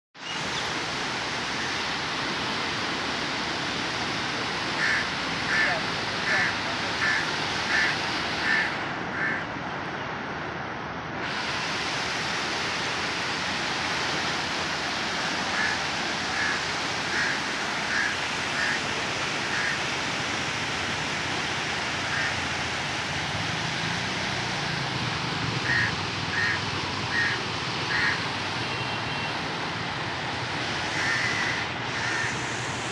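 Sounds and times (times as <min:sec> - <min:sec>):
floodwater rushing: 0:00.2 - 0:32.9
bird calling: 0:25.6 - 0:28.2.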